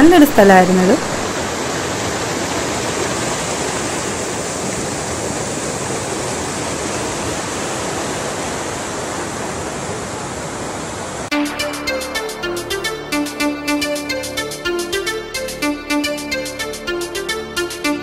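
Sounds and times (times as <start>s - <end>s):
river rushing over rocks: 1.0s - 11.3s.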